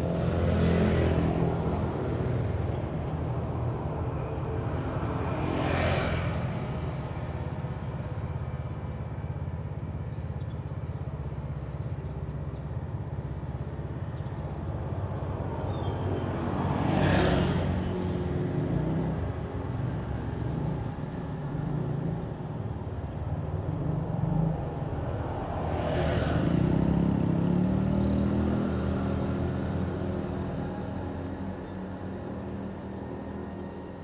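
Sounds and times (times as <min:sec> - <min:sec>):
motorcycle passing: 0:00.0 - 0:07.0, 0:16.4 - 0:22.9, 0:23.5 - 0:31.5
low rumble of traffic: 0:00.0 - 0:34.0.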